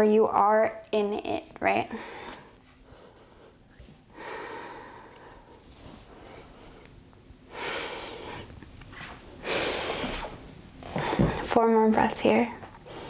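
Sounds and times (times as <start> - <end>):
woman breathing deeply: 1.9 - 8.6, 9.3 - 11.5, 12.8 - 13.0.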